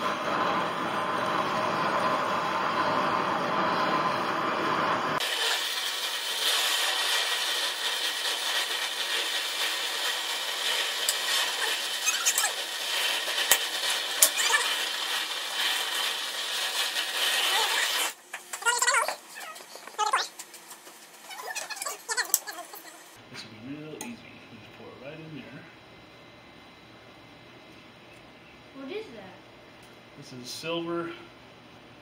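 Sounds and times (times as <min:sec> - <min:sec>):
gas torch flame hissing: 0:00.0 - 0:23.2.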